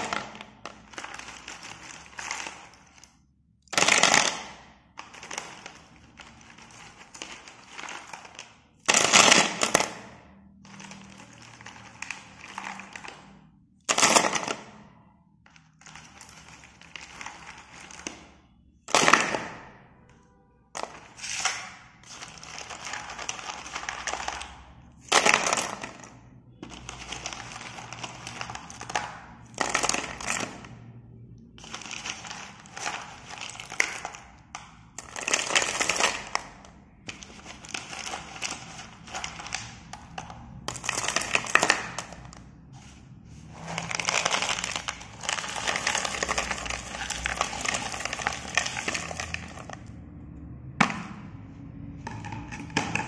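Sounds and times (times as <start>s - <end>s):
pencils clattering in plastic bucket: 0.0s - 53.0s.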